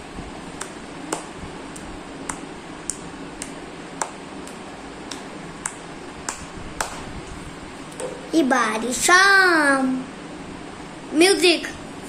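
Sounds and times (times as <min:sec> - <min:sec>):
hands clapping: 0:00.6 - 0:07.1.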